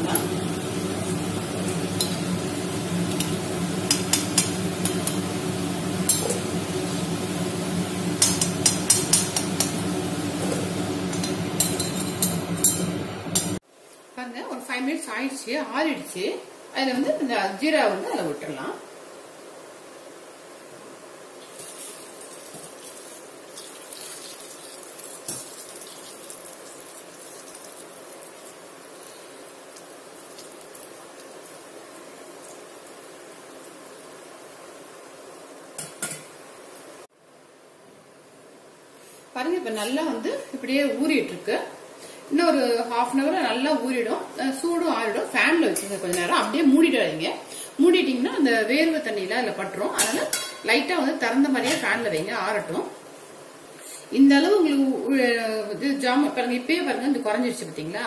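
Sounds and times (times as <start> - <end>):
balls sizzling in hot oil: 0.0 - 13.7, 21.3 - 37.1
metal spoon clinking on pan: 8.2 - 9.8, 11.1 - 13.6
syrup trickling and splashing: 21.5 - 33.0.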